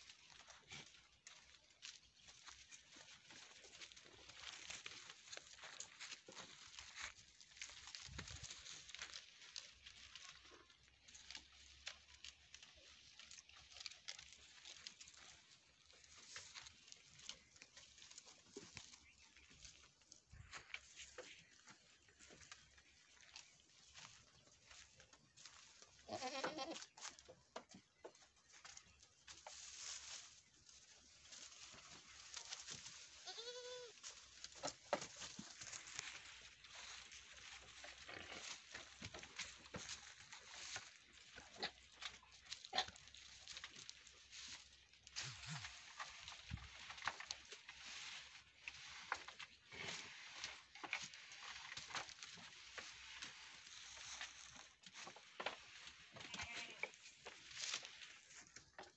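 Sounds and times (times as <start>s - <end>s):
dry leaves rustling and crackling: 0.0s - 58.9s
goat bleating: 26.0s - 26.9s, 33.2s - 34.0s, 56.2s - 57.0s.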